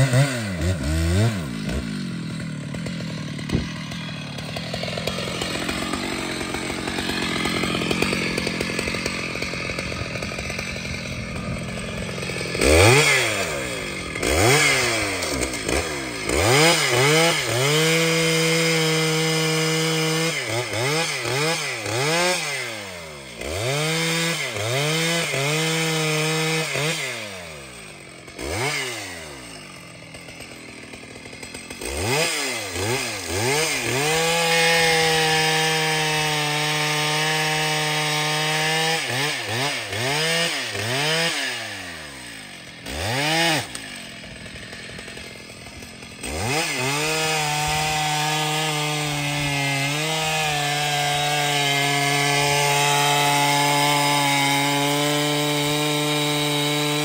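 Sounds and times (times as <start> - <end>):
chainsaw cutting wood: 0.0 - 57.0.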